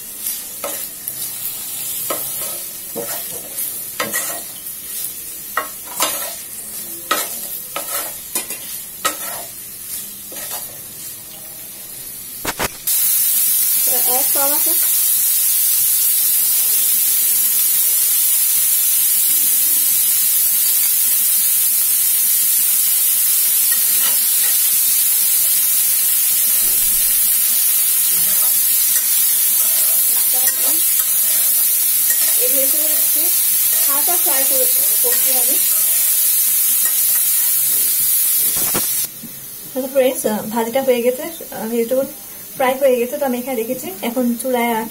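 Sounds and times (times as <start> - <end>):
vegetables sizzling in oil: 0.0 - 44.9
metal spatula scraping pan: 2.1 - 4.5, 5.9 - 6.4, 7.1 - 9.6.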